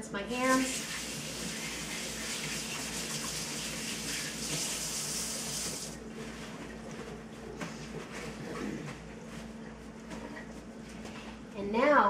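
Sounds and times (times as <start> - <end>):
tap water running: 0.3 - 6.0.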